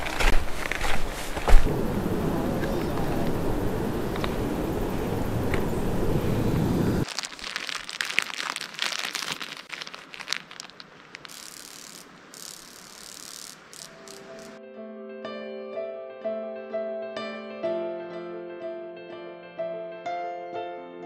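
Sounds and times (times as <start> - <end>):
wind buffeting the microphone: 0.0 - 7.1
plastic bag crinkling: 7.0 - 14.6.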